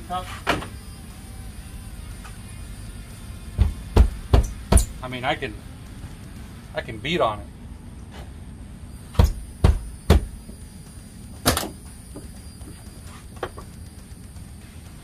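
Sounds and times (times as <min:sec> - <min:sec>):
hand pounding car door: 0:03.6 - 0:05.0, 0:09.2 - 0:10.4.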